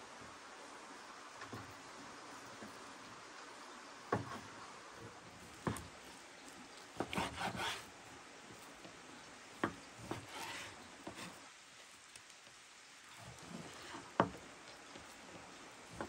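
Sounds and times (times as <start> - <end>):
knife scraping through meat: 7.0 - 7.9.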